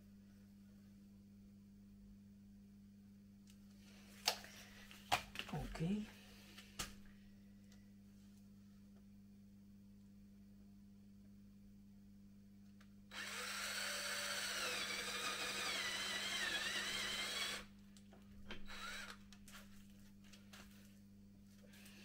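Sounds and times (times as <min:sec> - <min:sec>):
electric drill boring into wood: 0:13.1 - 0:17.7, 0:18.5 - 0:19.2.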